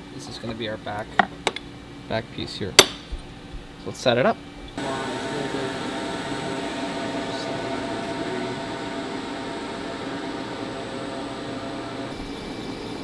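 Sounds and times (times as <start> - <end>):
milling machine humming: 4.6 - 13.0.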